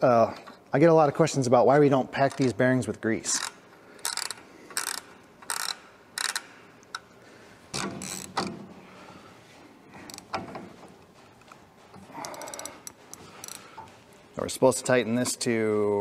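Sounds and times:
ratchet clicks: 0:02.2 - 0:02.5, 0:03.3 - 0:07.1, 0:07.8 - 0:08.5, 0:12.3 - 0:13.7.

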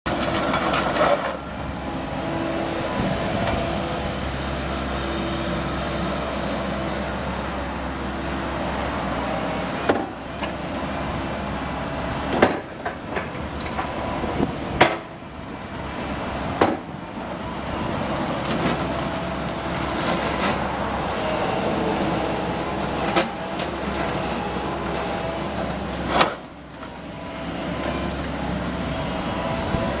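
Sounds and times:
excavator diesel engine: 0:00.1 - 0:30.0
metal clanks and knocks: 0:12.3 - 0:13.9.

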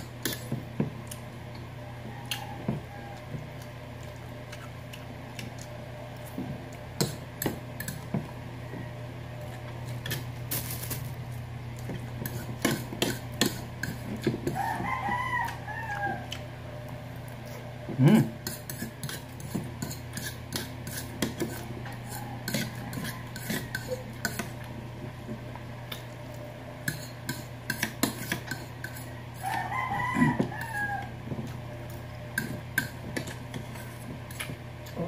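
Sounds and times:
rooster crowing: 0:01.8 - 0:03.6, 0:08.6 - 0:09.4, 0:14.4 - 0:16.4, 0:22.0 - 0:24.0, 0:29.0 - 0:31.3
fork scraping ceramic plate: 0:12.2 - 0:14.6, 0:18.2 - 0:24.6, 0:26.8 - 0:30.9, 0:32.4 - 0:34.5.

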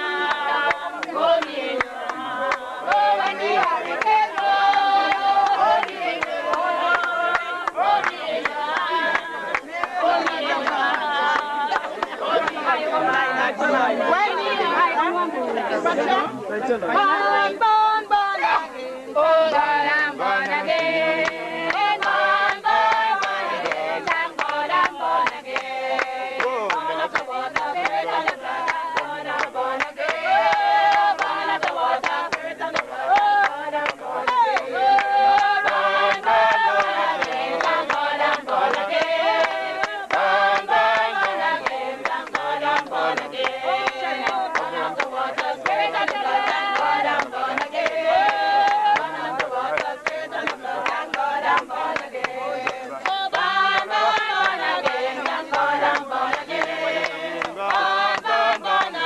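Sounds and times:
group of voices singing: 0:00.0 - 0:59.0.

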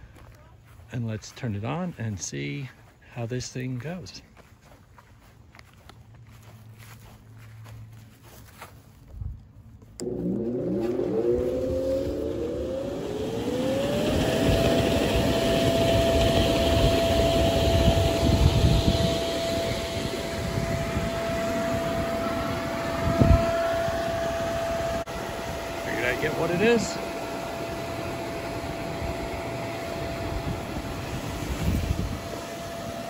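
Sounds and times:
blower motor whine: 0:09.8 - 0:33.0.

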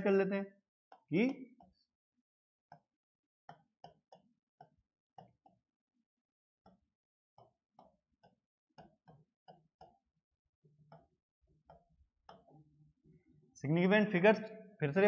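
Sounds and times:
pen tapping on a screen: 0:02.7 - 0:05.7, 0:06.6 - 0:10.1, 0:10.9 - 0:12.7.

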